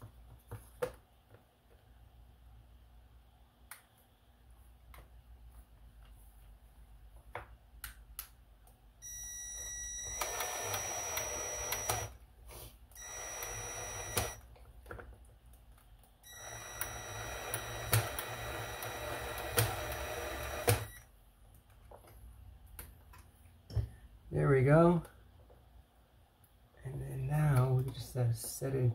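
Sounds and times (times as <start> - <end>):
cordless drill motor whining: 9.0 - 12.2, 13.0 - 14.4, 16.3 - 21.0.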